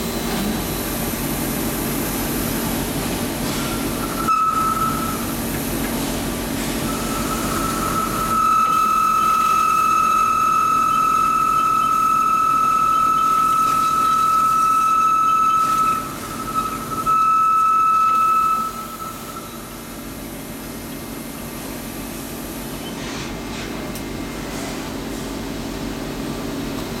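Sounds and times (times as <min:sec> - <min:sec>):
machine hum: 0:00.0 - 0:21.4
high-pitched lathe whine: 0:03.5 - 0:05.6, 0:06.7 - 0:20.5.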